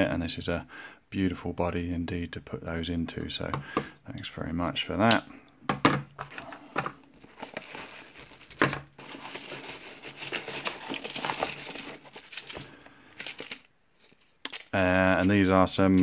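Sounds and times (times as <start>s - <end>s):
bubble wrap crinkling: 7.1s - 16.0s.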